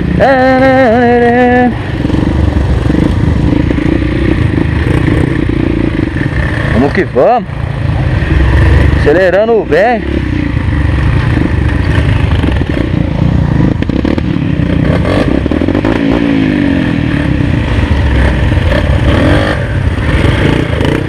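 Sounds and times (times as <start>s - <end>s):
motorcycle engine revving: 0.0s - 21.0s.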